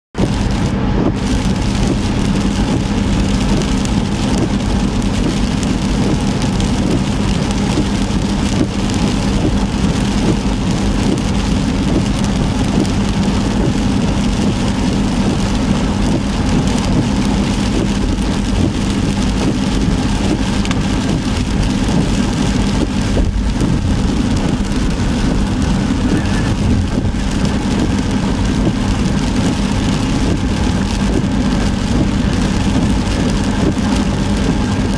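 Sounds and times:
car driving on wet road: 0:00.1 - 0:34.9
heavy rain on a car: 0:00.2 - 0:34.9.

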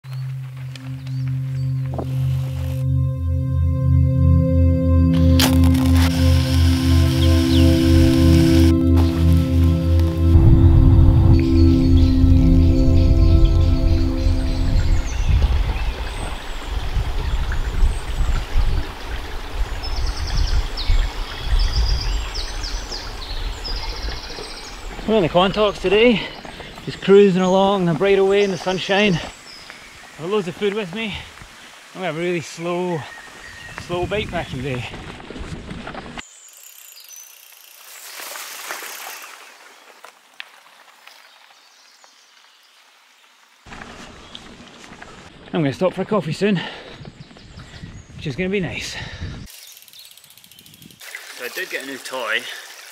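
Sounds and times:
bike tyres rolling on dirt: 0:00.0 - 0:02.8, 0:05.2 - 0:11.1, 0:14.5 - 0:52.9
stream running over stones: 0:05.2 - 0:10.3, 0:15.4 - 0:35.0, 0:37.0 - 0:43.9, 0:49.5 - 0:52.9
bird chirps: 0:05.9 - 0:10.3, 0:11.1 - 0:18.0
wind rumbling on microphone: 0:10.3 - 0:25.6, 0:33.4 - 0:36.2, 0:47.0 - 0:49.5
faint birdsong chirps and trills: 0:11.0 - 0:34.8, 0:36.2 - 0:38.1, 0:40.6 - 0:52.6.

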